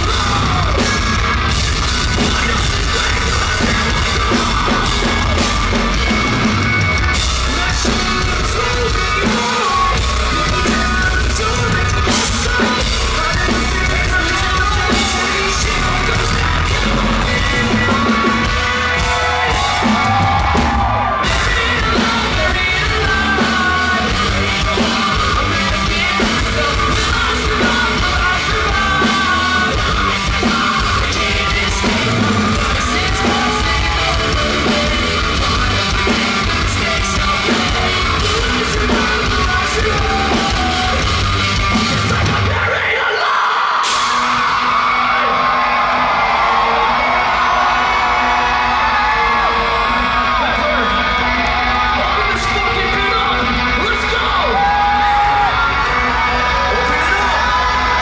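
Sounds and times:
bass guitar: 0:00.0 - 0:43.0, 0:43.9 - 0:58.0
person singing and yelling: 0:00.0 - 0:45.6
distorted electric guitars: 0:00.0 - 0:58.0
drum kit: 0:00.0 - 0:58.0.

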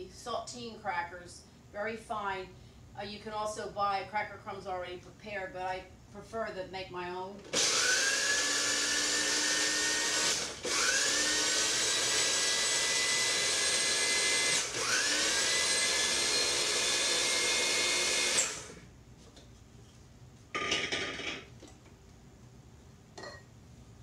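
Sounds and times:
electric food grinder whining: 0:07.4 - 0:18.8.

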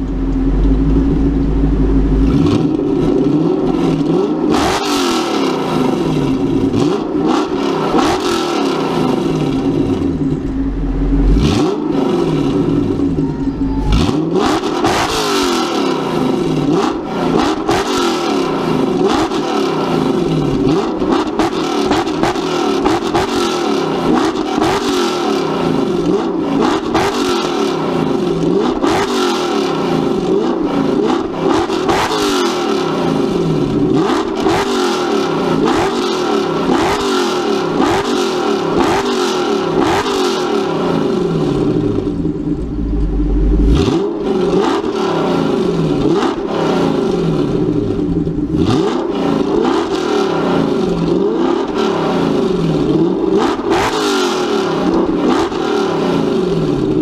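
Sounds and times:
deep rumble: 0:00.0 - 0:04.6, 0:08.9 - 0:15.3, 0:40.9 - 0:44.7
car engine revving: 0:00.0 - 0:57.0.

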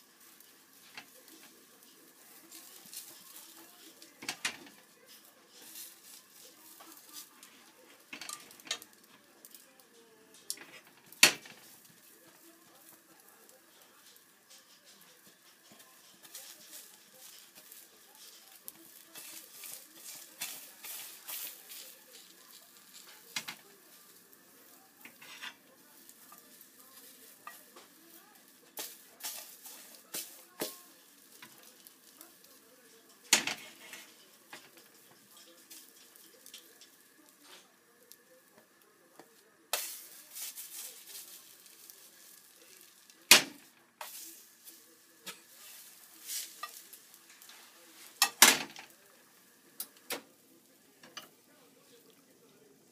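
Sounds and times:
egg frying in a pan: 0:00.0 - 0:52.9
utensil scraping a pan: 0:13.9 - 0:32.2, 0:33.1 - 0:37.7, 0:39.7 - 0:49.0.

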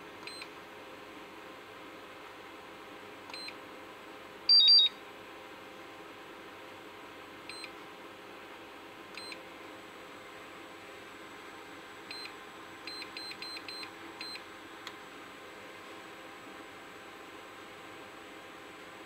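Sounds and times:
short high beeps: 0:04.5 - 0:05.0.

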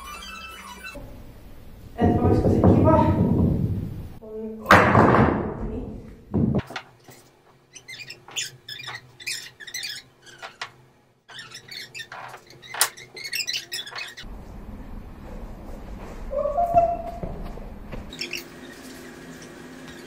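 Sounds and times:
footwork squeaks on wood: 0:00.0 - 0:01.0, 0:07.1 - 0:14.3.

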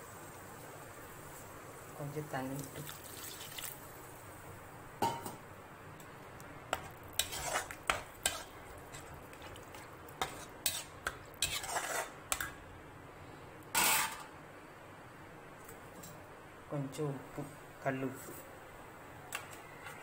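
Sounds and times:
metal ladle scraping a pan: 0:06.8 - 0:09.6, 0:10.2 - 0:12.2, 0:13.8 - 0:14.3.

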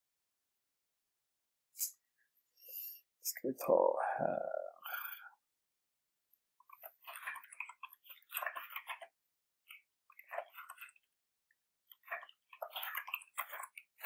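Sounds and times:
computer keyboard typing: 0:06.7 - 0:09.1, 0:10.2 - 0:11.0.

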